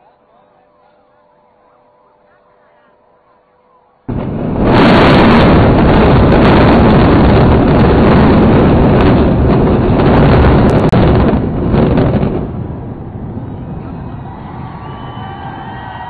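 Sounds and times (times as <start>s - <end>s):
buildings collapsing rumble: 4.1s - 16.0s.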